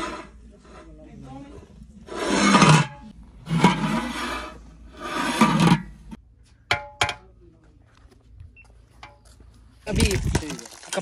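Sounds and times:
metal ladle scraping a pot: 0.0 - 6.2.

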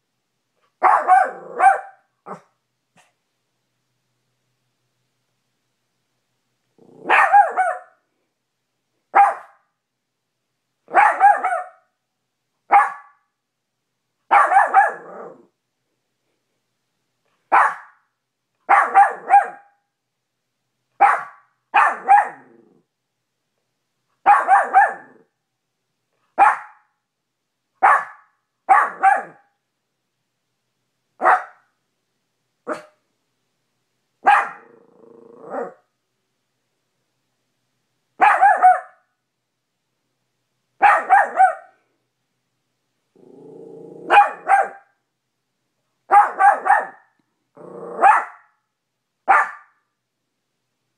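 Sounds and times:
small dog barking: 0.8 - 3.2, 6.8 - 8.0, 9.1 - 9.7, 10.9 - 11.9, 12.7 - 13.3, 14.3 - 15.5, 17.5 - 18.1, 18.7 - 19.8, 21.0 - 22.8, 24.2 - 25.3, 26.4 - 26.9, 27.8 - 29.5, 31.2 - 31.7, 32.6 - 33.0, 34.2 - 35.9, 38.2 - 39.1, 40.8 - 41.8, 43.9 - 45.0, 46.1 - 48.6, 49.2 - 49.8
dog growling: 6.8 - 7.2, 14.9 - 15.5, 22.3 - 22.9, 34.5 - 35.8, 43.2 - 44.2, 47.6 - 48.1.

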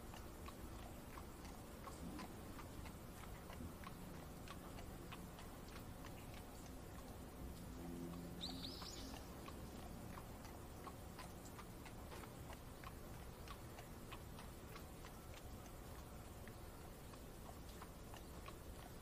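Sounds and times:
rain ticks: 0.0 - 19.0
soft rain hiss: 0.0 - 19.0
rising bird chirp: 8.4 - 9.2.

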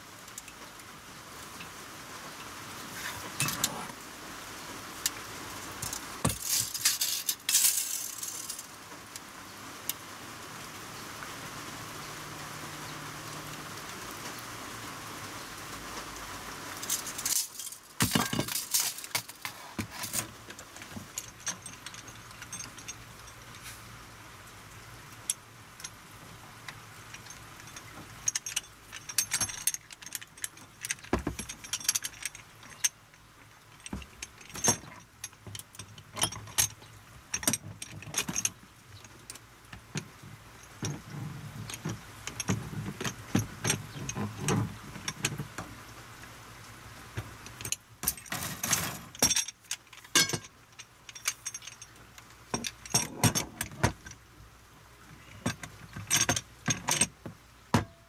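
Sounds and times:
metal pipe joints clicking: 5.8 - 8.7, 16.8 - 23.4, 27.1 - 45.5, 47.5 - 54.2, 55.3 - 57.2.

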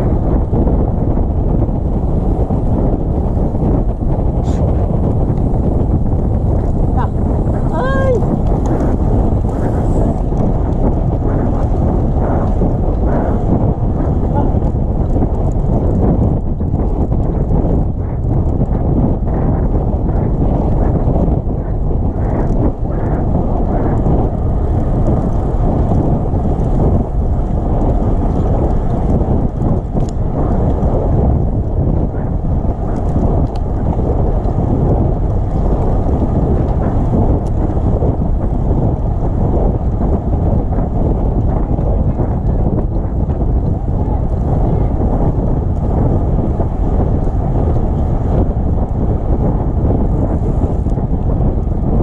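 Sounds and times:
low rumbling noise: 0.0 - 52.0
wind buffeting microphone: 0.0 - 52.0.

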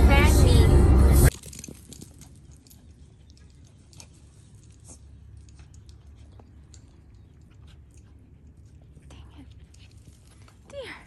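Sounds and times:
low rumble: 0.0 - 1.4.

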